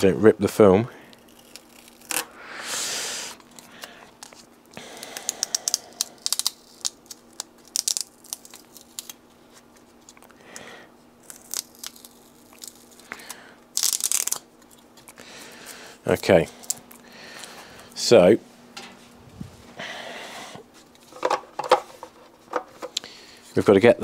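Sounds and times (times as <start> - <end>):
tape crackles and clicks: 1.1 - 2.3, 3.4 - 10.6, 11.2 - 17.9
masking tape ripping: 1.2 - 2.4, 5.0 - 9.2, 11.2 - 14.8.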